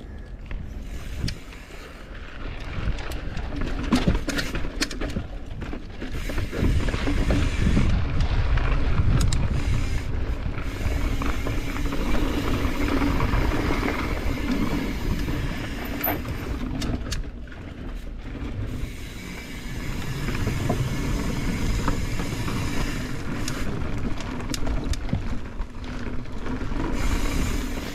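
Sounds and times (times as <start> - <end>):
wind rumbling on microphone: 0.0 - 27.9
bike knocks and rattles: 2.4 - 18.8.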